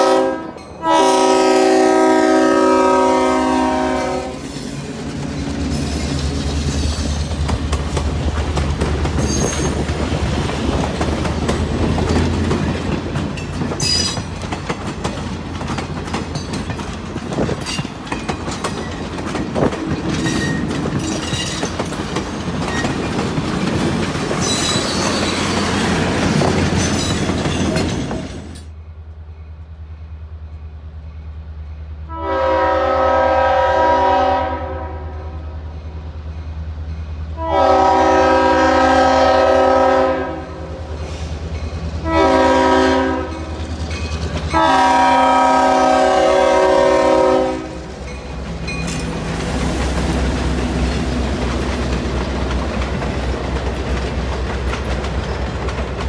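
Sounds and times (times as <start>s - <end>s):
locomotive horn blasts: 0.0s - 4.5s, 32.1s - 35.6s, 37.4s - 40.8s, 42.0s - 43.5s, 44.5s - 47.9s
train wheels clacking over rail joints: 4.4s - 28.8s, 41.0s - 45.6s, 47.8s - 56.0s.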